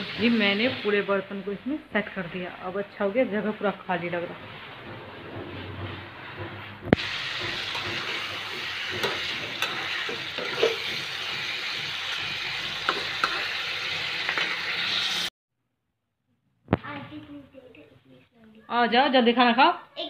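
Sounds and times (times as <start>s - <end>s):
chicken sizzling in hot oil: 0.0s - 3.9s, 6.9s - 15.3s
spatula scraping a wok: 2.0s - 15.3s.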